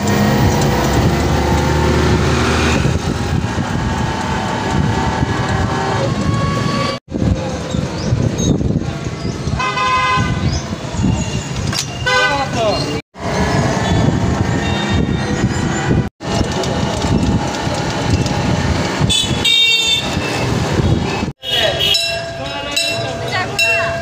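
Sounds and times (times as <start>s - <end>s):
motorbike and rickshaw traffic: 0.0s - 24.0s
vehicle horn honking: 9.6s - 10.4s, 12.0s - 12.5s, 19.1s - 20.4s, 21.4s - 22.1s.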